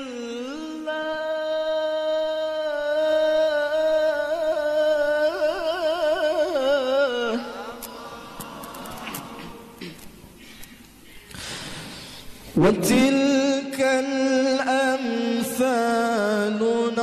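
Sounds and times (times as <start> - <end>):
man reciting melodically: 0.0 - 9.8, 12.2 - 17.0.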